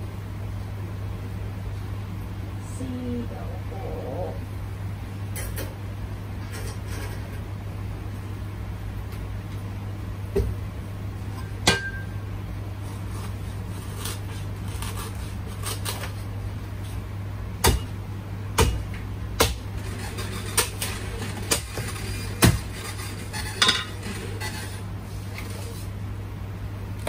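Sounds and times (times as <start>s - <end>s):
steady low hum: 0.0s - 27.0s
utensils and dishes clinking: 23.3s - 24.8s.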